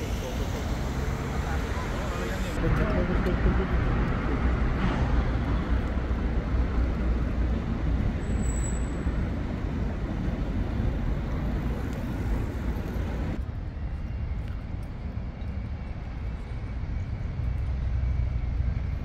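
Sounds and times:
low rumble of passing traffic: 0.0 - 19.0.

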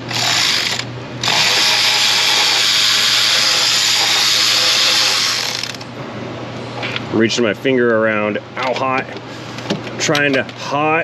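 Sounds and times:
electric ratchet spinning: 0.0 - 5.9.

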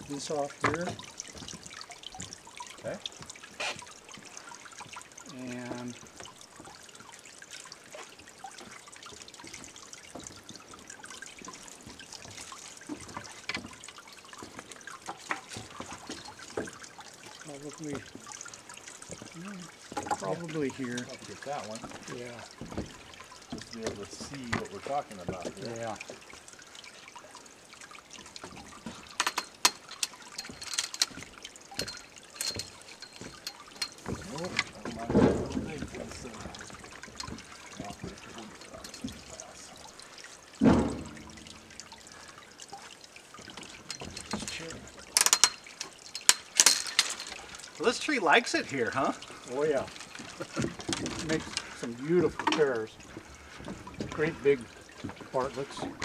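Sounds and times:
trickling water-like noise: 0.0 - 56.0
branches clicking and rustling: 28.3 - 39.0, 43.6 - 47.9, 49.4 - 53.7.

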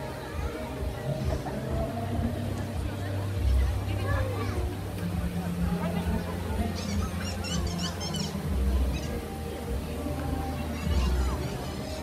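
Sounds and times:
music with low bass: 0.0 - 12.0
high chirping sounds: 6.7 - 9.2.

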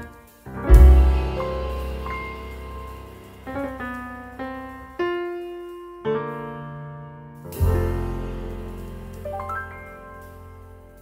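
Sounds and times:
background music: 0.0 - 5.8.

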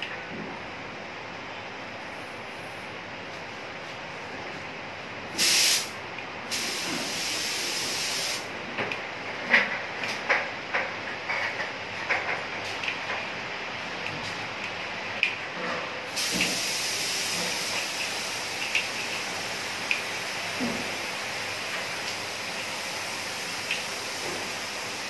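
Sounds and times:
steady background hiss: 0.0 - 10.8, 11.7 - 25.0
paint spray gun hissing: 5.4 - 8.5, 16.2 - 25.0.

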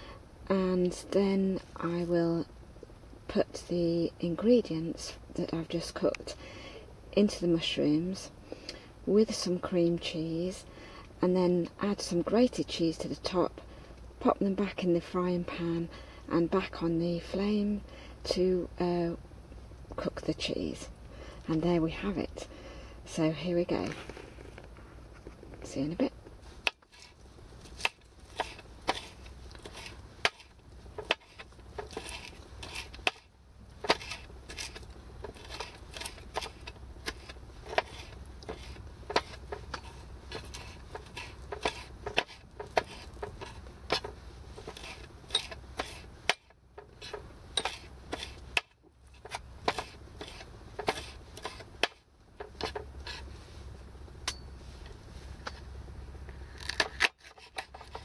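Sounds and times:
knife chopping on wooden board: 27.7 - 52.9.

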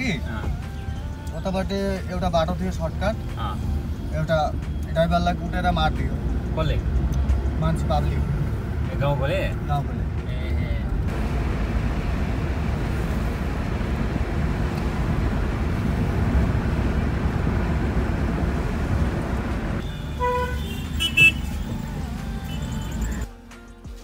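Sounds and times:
road and engine rumble in car: 0.0 - 23.3
vehicle horns honking: 19.8 - 23.2.

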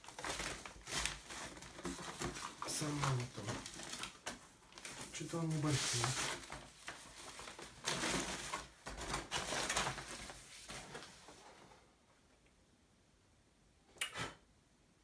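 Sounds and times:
plastic wrap rustling and scraping: 0.0 - 11.8.

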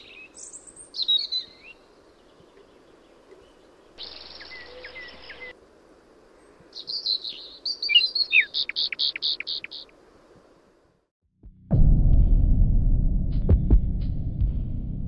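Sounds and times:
birds chirping and calling: 0.0 - 5.5, 6.7 - 9.9.

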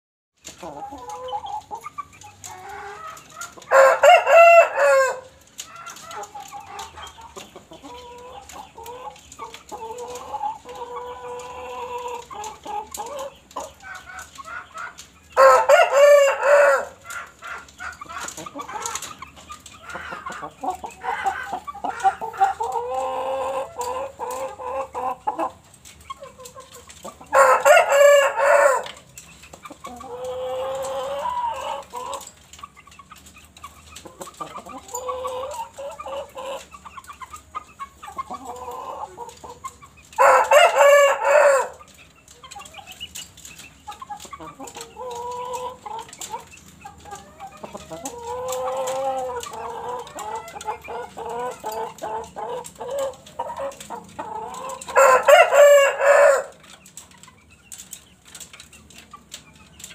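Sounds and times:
chicken clucking: 0.4 - 59.9
rooster crowing: 3.7 - 5.3, 15.4 - 17.0, 27.3 - 28.8, 55.0 - 56.5.

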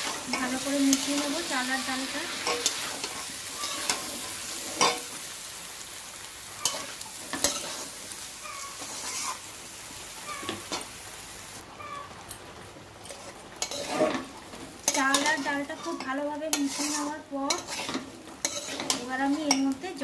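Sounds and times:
metal spatula scraping pan: 0.0 - 5.1, 6.6 - 9.5, 13.0 - 20.0
food sizzling in pan: 0.0 - 20.0.

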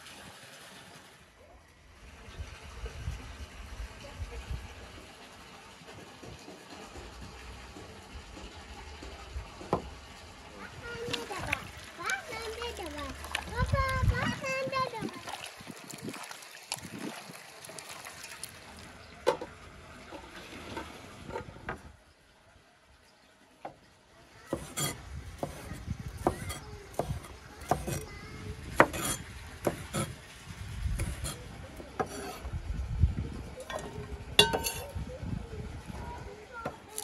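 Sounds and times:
knife chopping on a wooden board: 24.5 - 28.0, 28.8 - 30.1.

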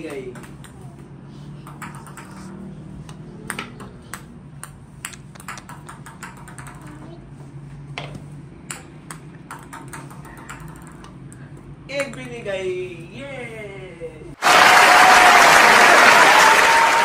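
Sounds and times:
plastic balls bouncing on glass: 3.5 - 7.1, 8.7 - 11.2.

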